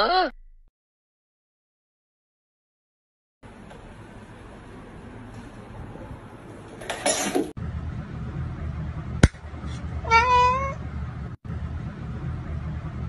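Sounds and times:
cat meowing: 0:10.0 - 0:10.8.

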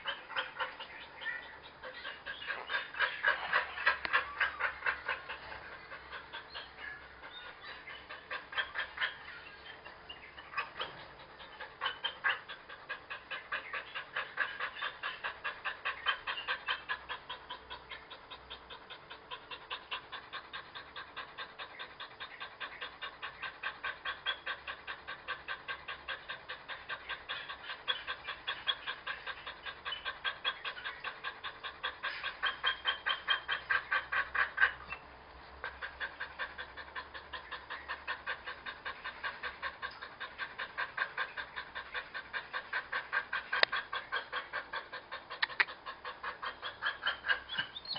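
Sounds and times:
large dog panting: 0:00.0 - 0:47.9.

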